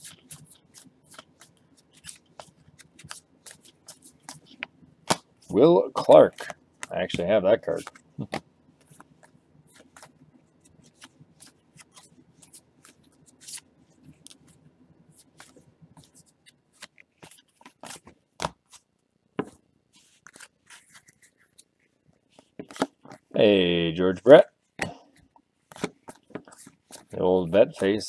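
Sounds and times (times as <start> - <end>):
cards sliding and clicking: 0.0 - 6.9, 7.7 - 14.6, 15.2 - 18.9, 20.0 - 21.7, 22.4 - 23.3, 25.7 - 27.2.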